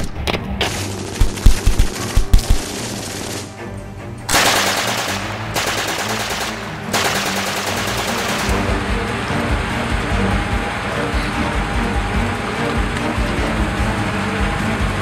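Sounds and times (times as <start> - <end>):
gunshots: 0.6 - 3.5, 4.3 - 8.9
machine-gun fire: 0.6 - 3.5, 4.3 - 8.8.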